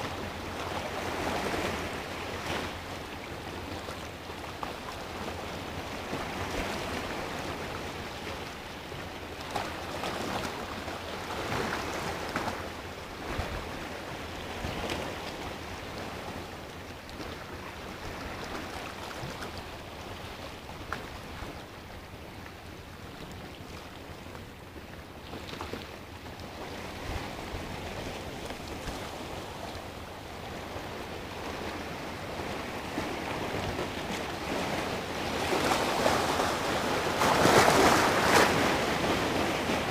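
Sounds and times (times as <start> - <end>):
sea waves washing over rocks: 26.5 - 39.9.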